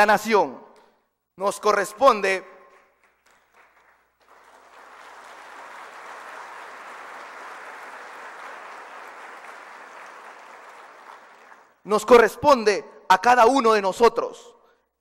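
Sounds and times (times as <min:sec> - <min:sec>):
audience applauding: 0:02.7 - 0:11.8.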